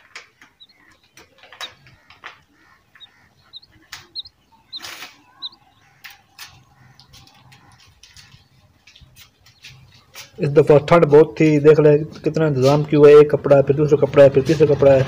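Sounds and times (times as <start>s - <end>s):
quail chirping: 0.0s - 11.2s.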